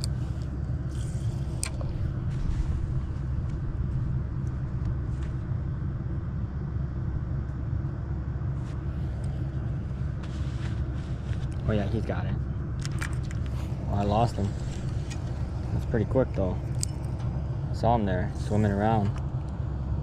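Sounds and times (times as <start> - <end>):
wind buffeting microphone: 0.0 - 10.2.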